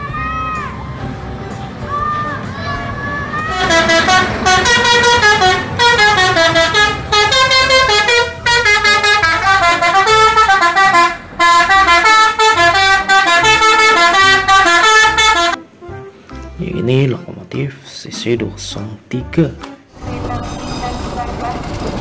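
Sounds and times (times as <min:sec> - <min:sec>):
musical air horn melody: 0:03.5 - 0:17.0.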